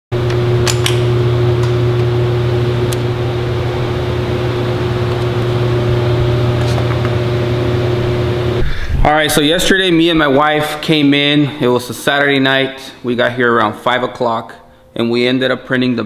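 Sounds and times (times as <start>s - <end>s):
screen-printing press humming: 0.2s - 8.8s.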